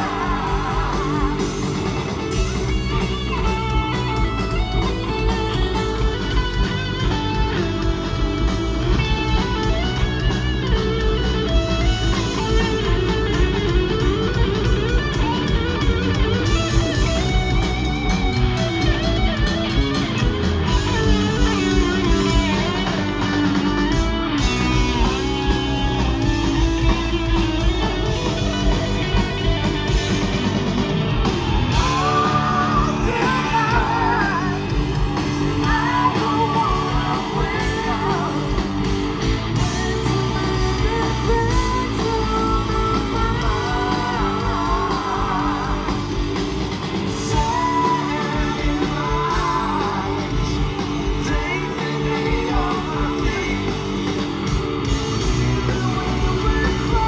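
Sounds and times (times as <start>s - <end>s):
man singing lead vocal: 0.0s - 1.8s, 31.7s - 38.8s, 39.6s - 46.2s, 47.1s - 54.3s, 55.2s - 57.0s
distorted electric guitar: 0.0s - 57.0s
drum kit: 0.0s - 57.0s
electric bass: 0.0s - 57.0s.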